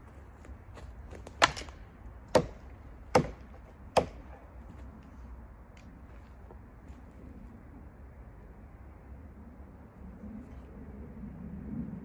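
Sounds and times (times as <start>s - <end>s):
hatchet chopping wood: 1.1s - 4.5s.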